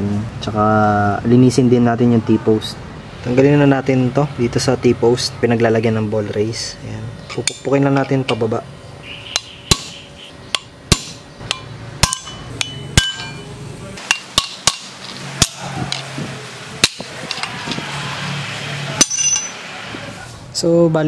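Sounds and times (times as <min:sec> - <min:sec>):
hammer tapping metal: 0:07.3 - 0:08.4, 0:09.3 - 0:16.1, 0:16.8 - 0:17.5, 0:19.0 - 0:19.6.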